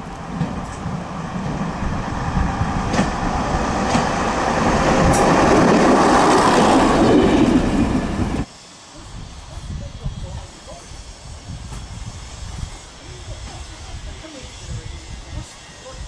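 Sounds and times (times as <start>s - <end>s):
railbus passing: 0.0s - 8.5s.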